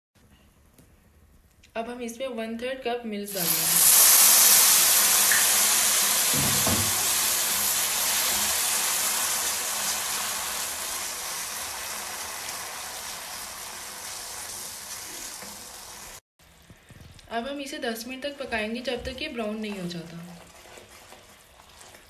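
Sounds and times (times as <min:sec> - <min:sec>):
milk sizzling in a hot pan: 0:03.3 - 0:16.2, 0:19.5 - 0:22.0
low thump: 0:06.3 - 0:07.1.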